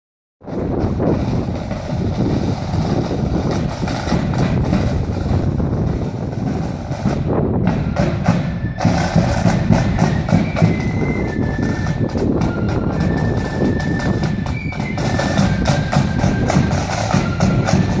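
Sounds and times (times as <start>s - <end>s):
marching band drums: 0.4s - 18.0s
high flute notes: 7.8s - 18.0s.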